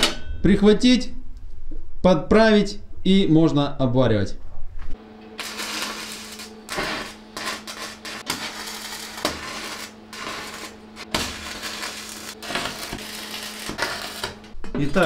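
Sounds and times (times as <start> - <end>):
steady hum: 4.4 - 14.6
arc welding crackling: 5.3 - 15.0.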